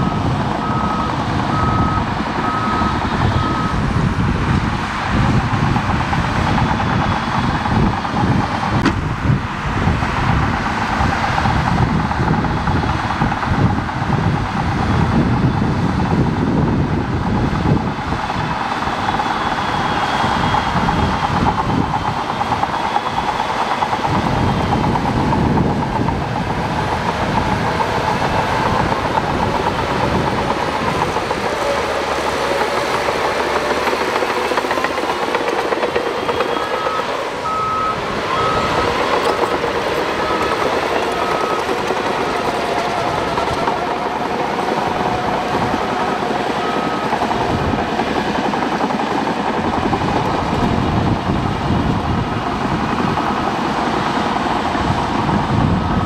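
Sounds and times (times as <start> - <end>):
reversing alarm beeping: 0.0 - 3.9, 6.5 - 8.8, 18.3 - 48.6, 55.6 - 56.0
bulldozer running under load: 0.0 - 56.0.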